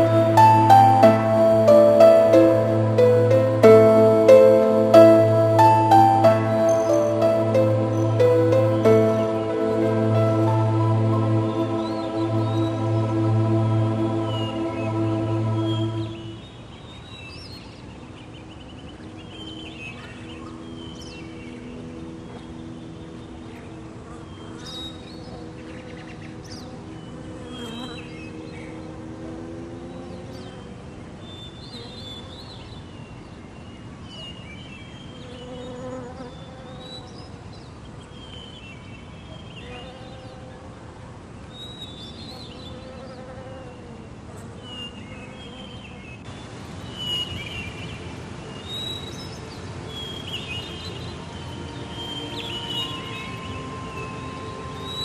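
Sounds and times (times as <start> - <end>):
high bird chirps: 48.6 - 55.0
low droning hum: 49.5 - 55.0.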